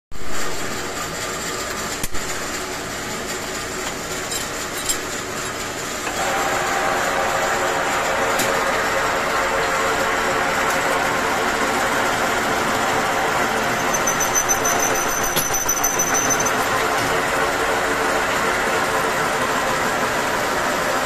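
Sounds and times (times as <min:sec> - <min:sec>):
lathe machine hum: 0:00.7 - 0:21.0
lathe chuck spinning: 0:10.3 - 0:17.0.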